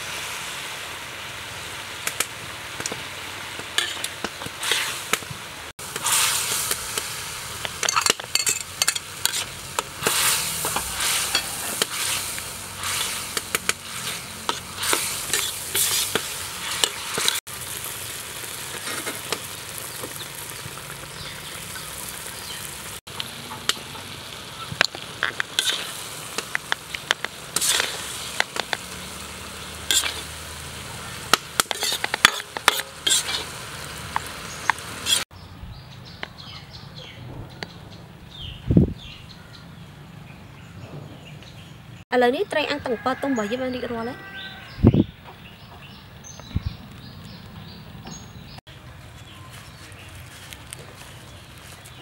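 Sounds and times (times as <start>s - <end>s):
sauce sizzling in a wok: 0.0s - 35.3s
metal ladle scraping a pan: 3.8s - 5.1s, 7.7s - 17.4s, 24.6s - 30.4s, 31.2s - 33.6s, 34.7s - 35.2s.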